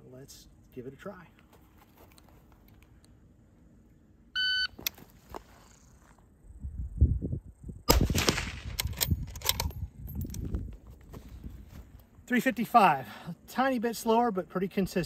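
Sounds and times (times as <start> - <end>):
shot timer beep: 4.4 - 4.7
rifle shot: 7.9 - 9.2.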